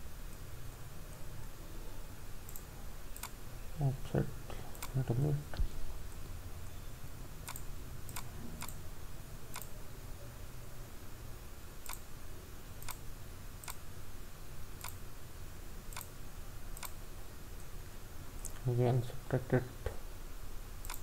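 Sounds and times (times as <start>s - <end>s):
low steady hum: 0.0s - 21.0s
computer mouse clicking: 2.5s - 3.4s, 7.4s - 8.8s, 9.5s - 9.8s, 11.8s - 12.1s, 12.8s - 13.0s, 13.6s - 13.8s, 14.8s - 15.0s, 15.9s - 16.1s, 16.8s - 17.0s.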